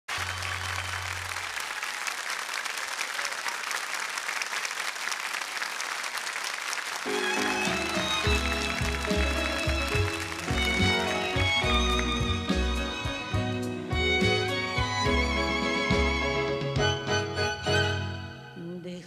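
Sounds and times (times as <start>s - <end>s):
studio audience applauding: 0.1s - 16.8s
instrumental music: 7.1s - 18.7s.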